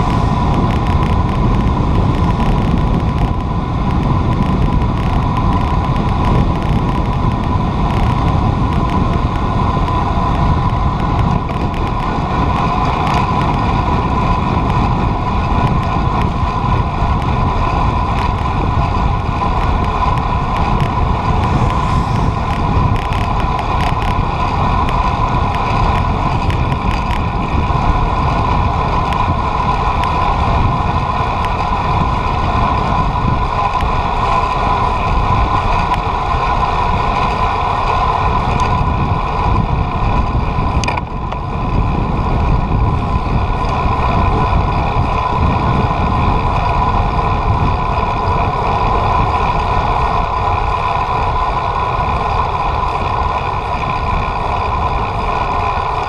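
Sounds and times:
steady mid-pitched hum: 0.0 - 56.0
wind buffeting microphone: 0.0 - 56.0.

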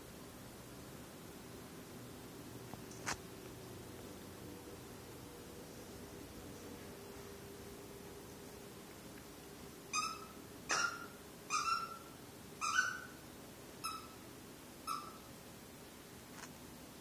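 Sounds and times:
plush toy squeaker squeaking: 9.9 - 13.1, 13.8 - 14.2, 14.9 - 15.2.

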